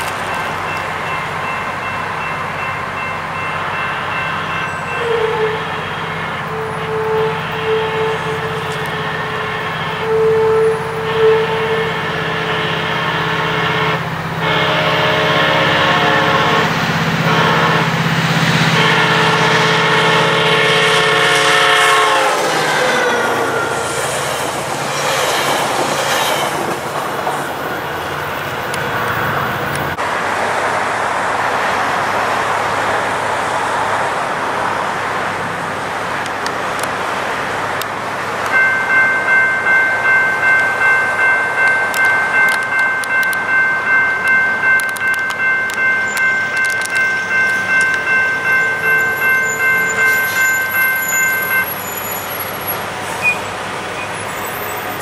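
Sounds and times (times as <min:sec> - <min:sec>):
train cars rumbling on rails: 0:00.0 - 0:55.0
train horn: 0:04.5 - 0:24.2, 0:46.8 - 0:51.7.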